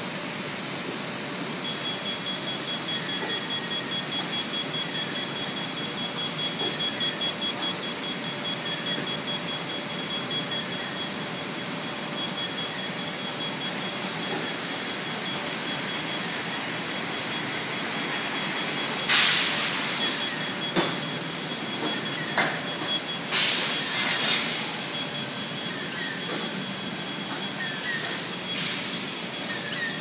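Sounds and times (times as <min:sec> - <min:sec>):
machine mechanical hum: 0:00.0 - 0:30.0
high squeal: 0:12.2 - 0:30.0
hiss bursts: 0:15.8 - 0:20.2, 0:23.3 - 0:24.9.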